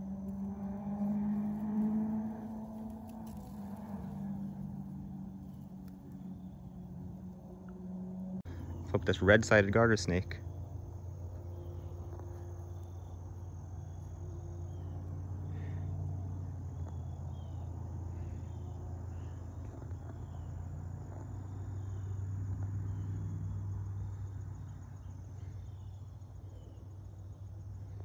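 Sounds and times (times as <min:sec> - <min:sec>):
low rumble: 0:00.0 - 0:14.0
insects trilling: 0:00.0 - 0:28.0
short insect chirps: 0:00.0 - 0:28.0.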